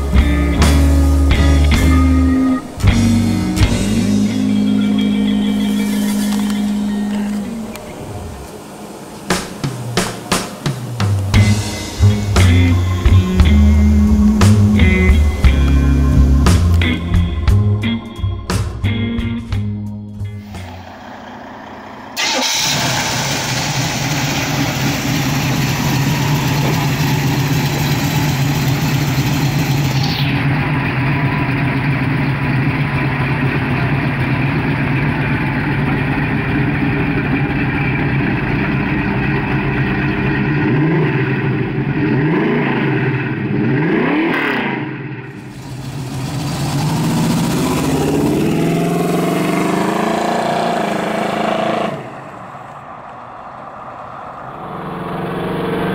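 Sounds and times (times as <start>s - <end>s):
car accelerating away: 0.0s - 9.1s, 20.4s - 55.9s
car engine idling and revving: 0.0s - 55.9s.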